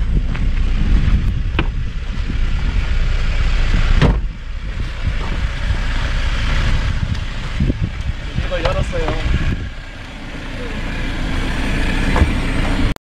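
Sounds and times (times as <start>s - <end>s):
wind buffeting microphone: 0.0s - 12.9s
sharp knocks: 1.5s - 1.8s.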